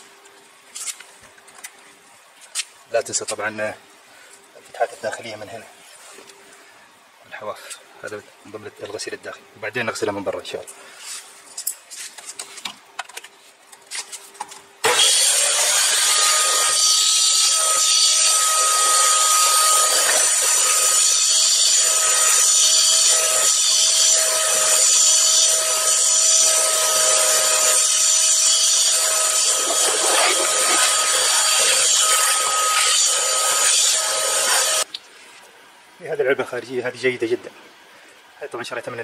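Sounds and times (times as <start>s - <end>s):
vacuum cleaner running: 14.8s - 25.9s, 26.5s - 34.9s.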